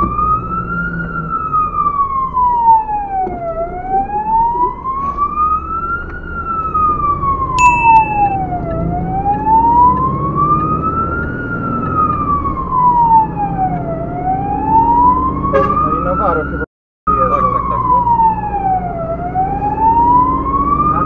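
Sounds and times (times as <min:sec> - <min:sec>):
fire engine siren wailing: 0:00.0 - 0:07.6, 0:08.4 - 0:21.0
short high beep: 0:07.6 - 0:08.4.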